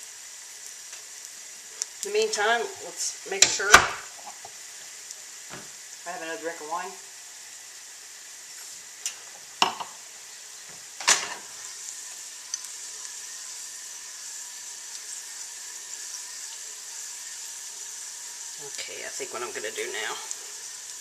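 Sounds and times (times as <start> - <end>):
garlic sizzling in oil: 0.0 - 21.0.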